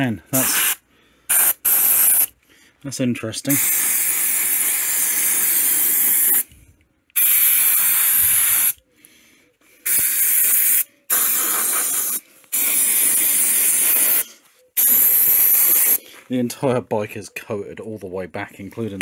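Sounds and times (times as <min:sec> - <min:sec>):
aerosol can spraying: 0:00.4 - 0:02.3, 0:03.5 - 0:06.4, 0:07.2 - 0:08.8, 0:09.8 - 0:14.2, 0:14.8 - 0:16.0.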